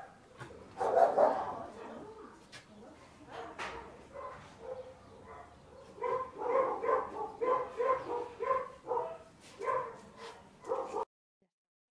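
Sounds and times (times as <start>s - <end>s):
dog yipping: 0.8s - 1.6s, 4.2s - 11.0s.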